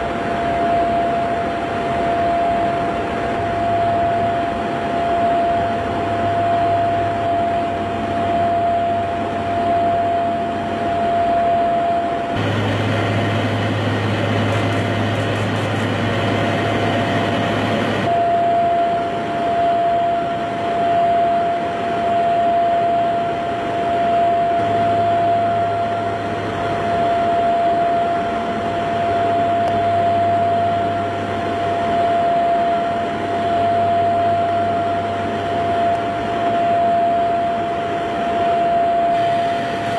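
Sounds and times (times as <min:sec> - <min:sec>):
aircraft engine and airflow drone: 0:00.0 - 0:39.9
high steady whine: 0:00.0 - 0:39.9.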